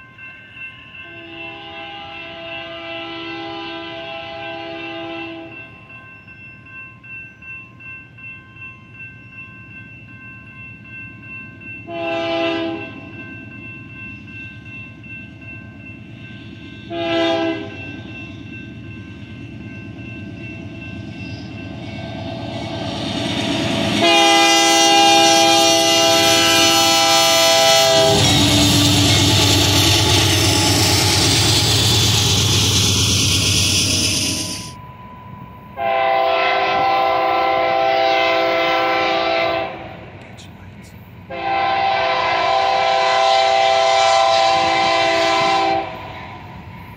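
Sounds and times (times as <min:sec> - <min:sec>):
crossing signal bell ringing: 0:00.0 - 0:39.1
locomotive air horn blasts: 0:01.1 - 0:05.5, 0:11.9 - 0:13.0, 0:16.9 - 0:17.8, 0:23.8 - 0:31.0, 0:35.8 - 0:40.0, 0:41.3 - 0:46.1
train cars rumbling on rails: 0:11.6 - 0:34.8.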